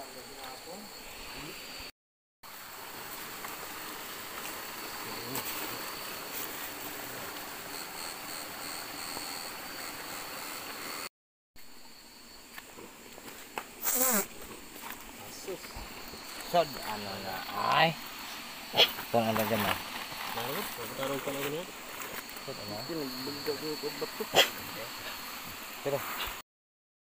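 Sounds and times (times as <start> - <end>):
stream water over rocks: 2.5 - 8.0.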